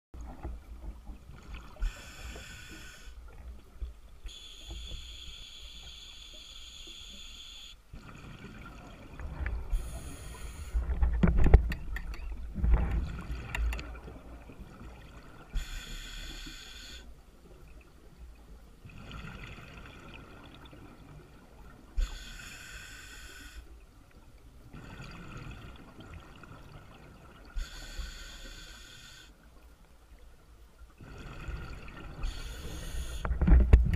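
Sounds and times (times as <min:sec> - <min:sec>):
diver breathing through regulator: 0:01.8 - 0:03.2, 0:09.7 - 0:11.0, 0:15.5 - 0:17.1, 0:22.0 - 0:23.7, 0:27.6 - 0:29.4, 0:31.0 - 0:33.5
exhaled bubbles rumbling: 0:08.0 - 0:15.5.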